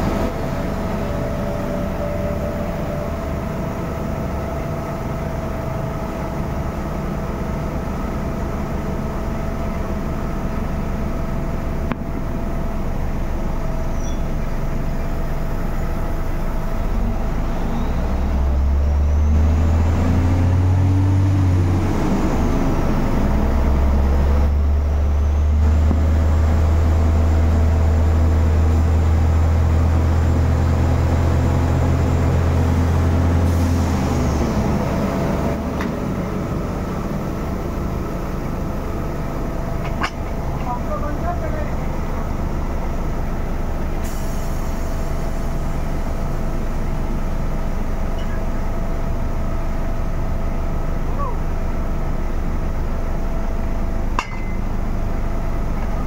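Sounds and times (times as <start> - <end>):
deep drone: 0.0 - 56.0
drilling rig machinery din: 29.2 - 56.0.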